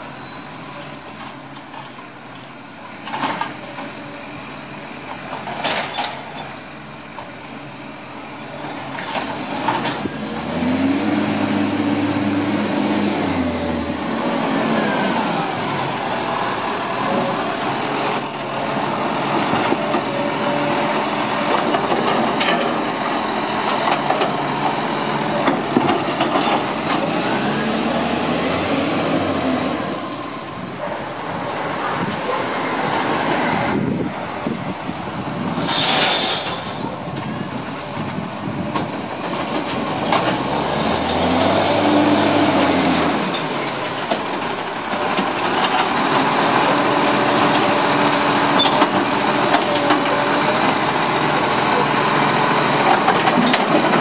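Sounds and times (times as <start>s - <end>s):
diesel truck driving past: 6.8s - 54.0s
air brake hisses: 35.6s - 36.8s.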